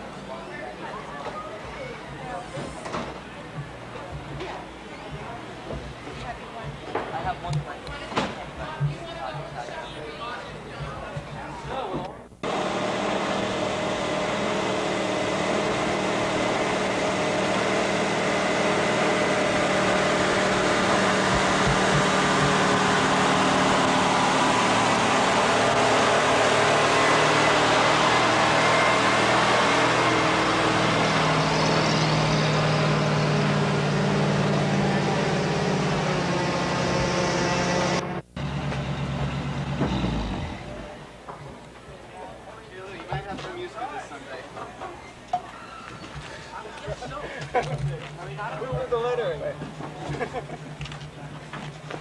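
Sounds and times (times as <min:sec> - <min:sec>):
bus engine running: 0:12.4 - 0:41.2.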